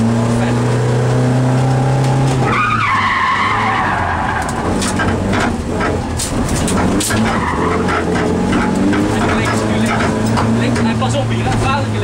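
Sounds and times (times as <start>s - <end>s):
car engine: 0.0s - 12.0s
tyres squealing: 2.4s - 11.4s
sharp ticks and knocks: 4.4s - 11.7s.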